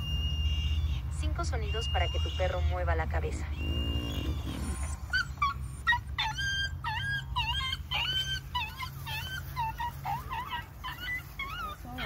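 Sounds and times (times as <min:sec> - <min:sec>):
dog whimpering and yelping: 0:00.0 - 0:12.0.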